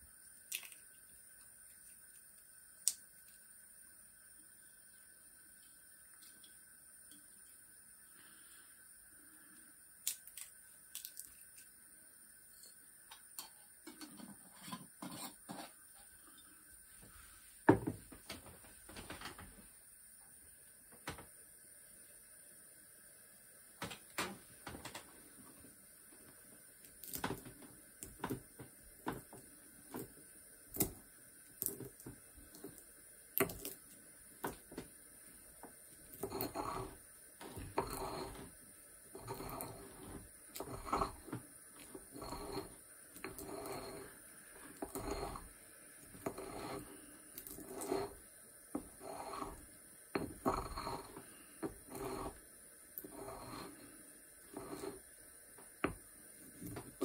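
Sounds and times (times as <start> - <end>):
mortar and pestle grinding: 36.1 - 38.5, 39.1 - 45.5, 46.1 - 48.2, 48.8 - 49.6, 50.2 - 52.4, 53.0 - 53.7, 54.5 - 55.0.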